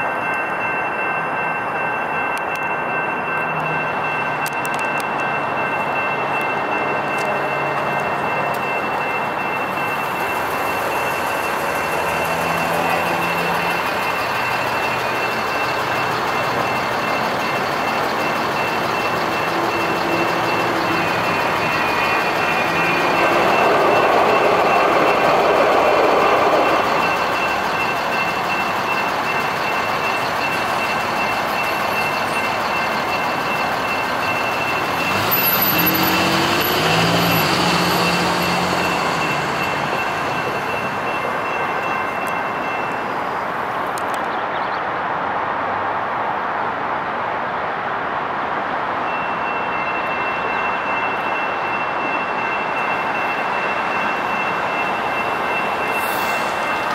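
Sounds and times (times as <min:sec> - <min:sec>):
crossing warning bell ringing: 0:00.0 - 0:44.1, 0:48.9 - 0:56.9
light rail train passing: 0:00.0 - 0:56.9
car engines pulling away: 0:06.4 - 0:43.1.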